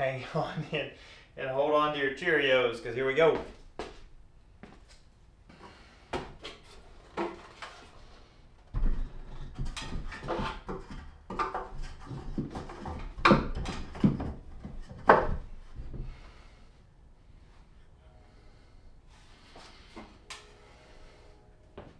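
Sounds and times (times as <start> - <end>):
wooden frame knocking and thudding: 8.8 - 15.9.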